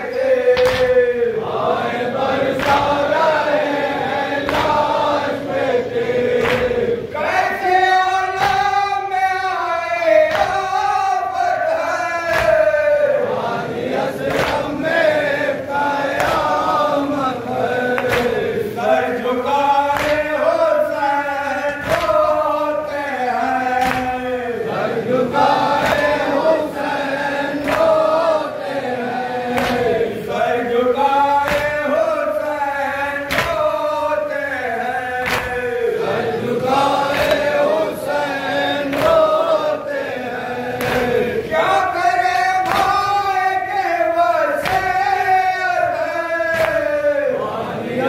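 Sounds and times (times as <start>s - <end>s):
men chanting in unison: 0.0s - 48.0s
chest-beating slaps: 0.4s - 1.6s, 2.2s - 3.6s, 4.4s - 5.3s, 6.0s - 7.3s, 8.3s - 8.9s, 12.3s - 12.8s, 14.2s - 14.9s, 16.1s - 16.8s, 17.9s - 18.7s, 19.9s - 20.4s, 21.8s - 22.6s, 23.7s - 24.4s, 25.4s - 28.8s, 29.5s - 30.2s, 31.3s - 32.0s, 33.2s - 34.0s, 35.2s - 35.7s, 36.4s - 39.7s, 40.8s - 41.6s, 42.6s - 43.2s, 44.6s - 45.1s, 46.5s - 46.9s.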